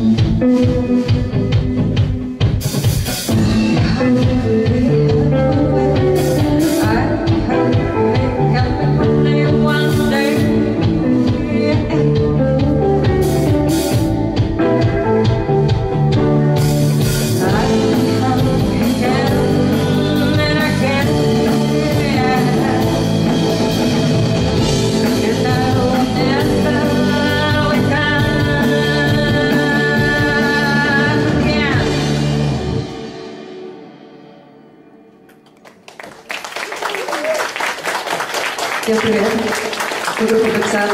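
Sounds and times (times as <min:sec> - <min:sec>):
guitar: 0:00.0 - 0:36.8
live rock band playing: 0:00.0 - 0:40.9
woman singing: 0:03.7 - 0:14.0, 0:17.4 - 0:23.7, 0:24.6 - 0:32.4.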